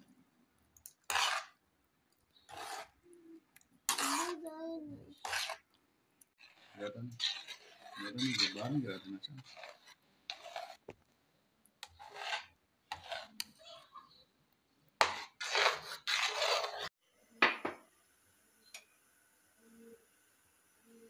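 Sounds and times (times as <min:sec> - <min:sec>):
spoon stirring batter in pan: 0:00.6 - 0:04.4, 0:05.0 - 0:16.9.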